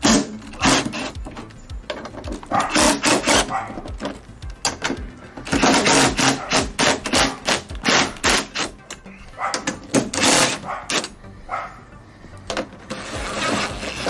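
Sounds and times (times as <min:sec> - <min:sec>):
impact driver rattling: 0:00.0 - 0:08.9, 0:09.5 - 0:11.1.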